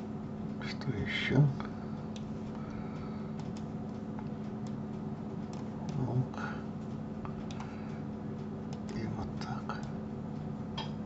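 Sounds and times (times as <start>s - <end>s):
steady low hum: 0.0s - 11.0s
computer mouse and keyboard clicks: 3.4s - 4.8s.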